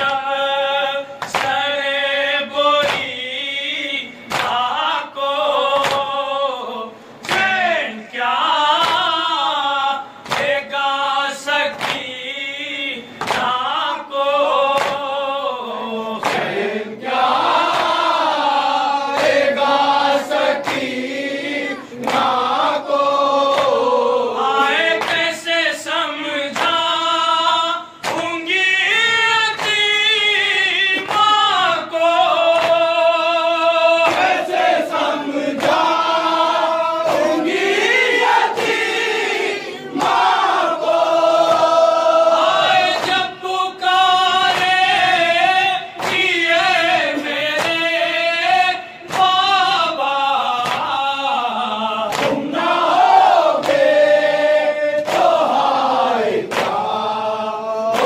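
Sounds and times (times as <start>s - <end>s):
men chanting in unison: 0.0s - 58.0s
sharp chest-beating slaps: 1.2s - 1.7s, 2.8s - 3.2s, 4.2s - 4.7s, 5.7s - 6.2s, 7.2s - 7.6s, 8.8s - 9.2s, 10.2s - 10.7s, 11.7s - 12.2s, 13.2s - 13.6s, 14.7s - 15.1s, 16.2s - 16.6s, 17.5s - 18.1s, 20.5s - 21.0s, 22.0s - 22.6s, 23.4s - 23.9s, 25.0s - 25.4s, 26.5s - 26.9s, 28.0s - 28.4s, 29.6s - 29.9s, 31.0s - 31.4s, 32.4s - 33.0s, 34.0s - 35.0s, 35.6s - 36.2s, 39.9s - 41.9s, 42.5s - 43.3s, 44.4s - 45.4s, 46.0s - 47.9s, 49.0s - 49.4s, 50.6s - 51.0s, 52.1s - 54.3s, 55.0s - 55.8s, 56.4s - 57.0s.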